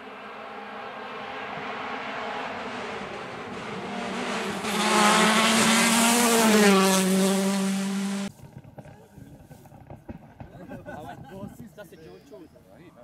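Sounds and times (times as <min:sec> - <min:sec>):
rally car engine passing by: 0:00.0 - 0:08.3.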